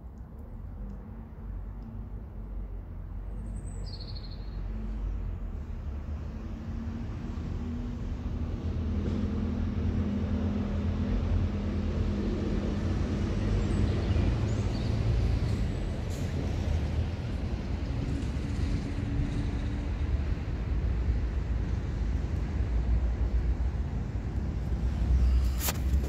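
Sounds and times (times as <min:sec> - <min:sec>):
traffic rumble: 0:00.0 - 0:26.0
engine hum: 0:04.9 - 0:26.0.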